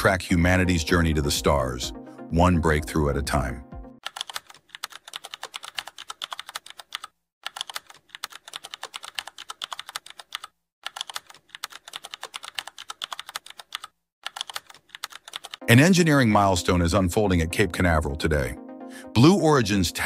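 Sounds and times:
computer keyboard typing: 0:04.0 - 0:15.7.

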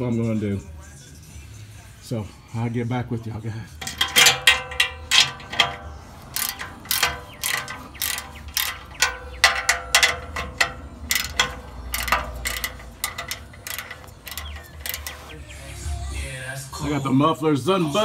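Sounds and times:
metallic ring from pipe: 0:03.8 - 0:15.3
ratchet wrench clicking: 0:03.8 - 0:15.4.

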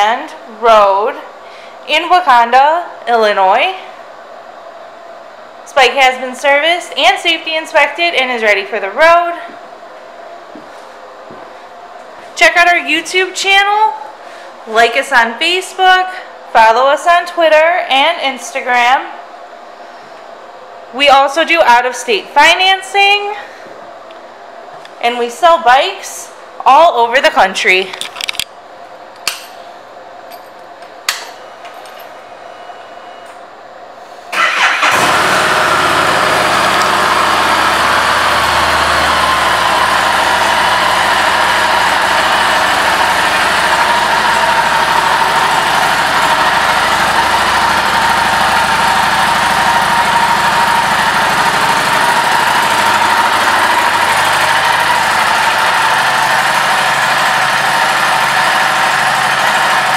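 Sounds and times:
motorcycle engine starting and idling: 0:34.3 - 0:59.9.

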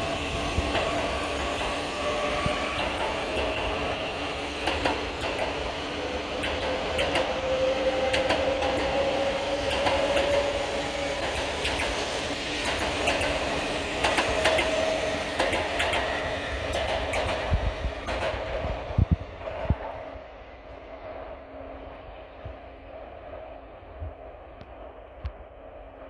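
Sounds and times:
train running rumble: 0:00.0 - 0:26.0
train whine rising in pitch: 0:00.0 - 0:26.0
wheels clicking over track: 0:02.8 - 0:07.4, 0:08.0 - 0:18.6.

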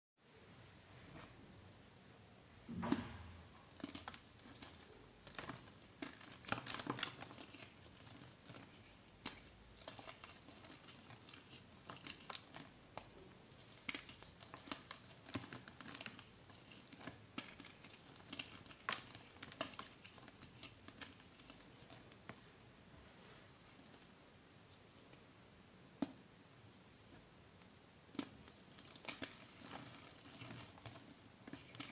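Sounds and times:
chalk crunching and crumbling: 0:03.6 - 0:22.5, 0:27.7 - 0:31.9.

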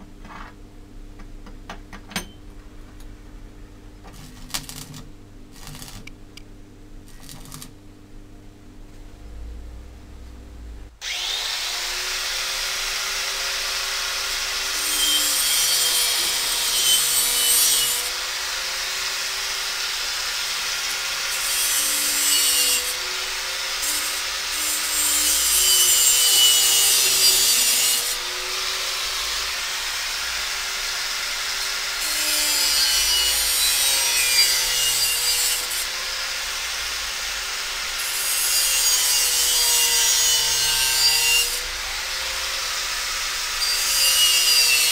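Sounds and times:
angle grinder grinding metal: 0:04.1 - 0:06.1, 0:07.1 - 0:07.7, 0:11.0 - 0:44.9
grinder motor whine: 0:11.0 - 0:15.2.

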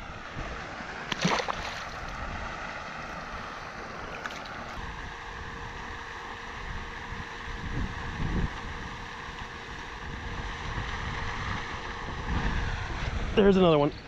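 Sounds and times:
fish splashing into water: 0:00.6 - 0:02.2
wind on microphone: 0:06.5 - 0:14.0.

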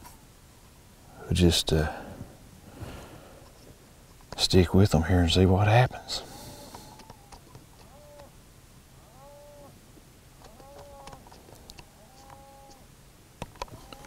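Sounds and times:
electronic prey distress cries: 0:06.3 - 0:08.3, 0:09.0 - 0:09.8, 0:10.4 - 0:11.2, 0:11.8 - 0:12.9, 0:13.7 - 0:14.0.

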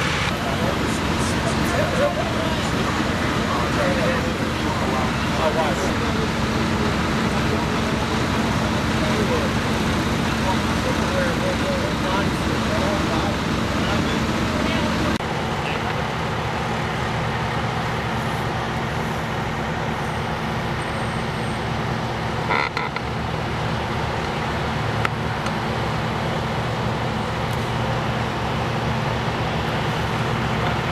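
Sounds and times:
diesel engines idling: 0:00.0 - 0:30.9.

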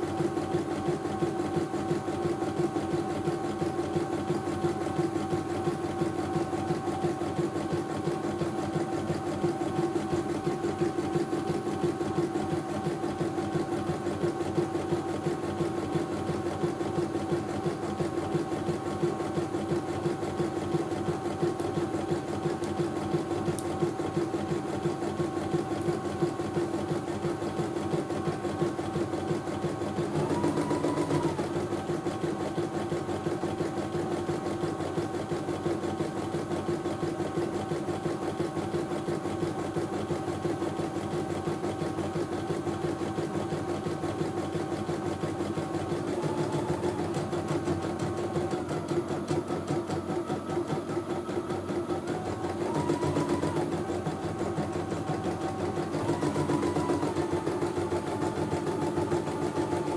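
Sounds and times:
embroidery machine stitching: 0:00.0 - 0:59.9.

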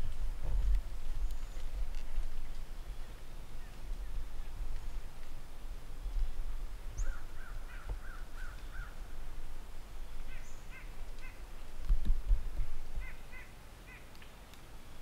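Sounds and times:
crows cawing: 0:07.0 - 0:09.0, 0:10.3 - 0:11.5, 0:13.0 - 0:14.1.

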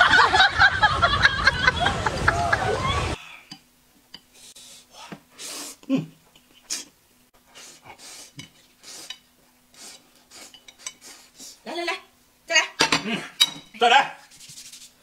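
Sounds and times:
bowls and chopsticks clinking: 0:10.5 - 0:11.0.

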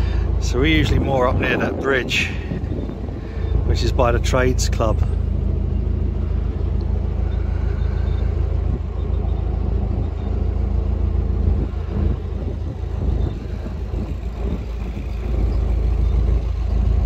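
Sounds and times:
boat engine throbbing: 0:00.0 - 0:17.0.

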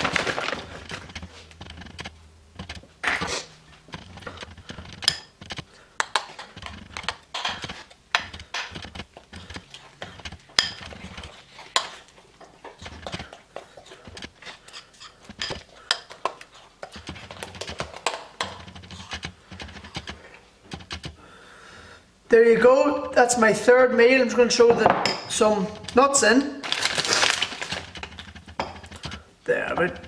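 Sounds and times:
spoon scraping ceramic bowl: 0:09.7 - 0:20.0.

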